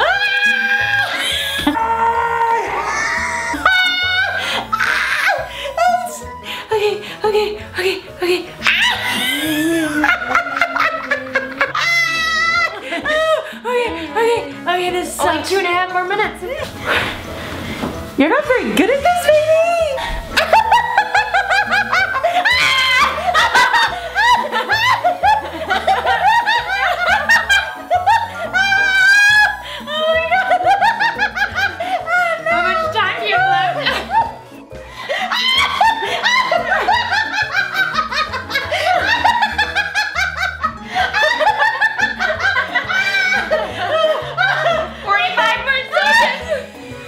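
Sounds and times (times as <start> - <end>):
background music with bass line: 0.0 - 47.0
women laughing: 3.0 - 6.2, 8.6 - 14.4, 19.2 - 34.4, 35.1 - 46.8.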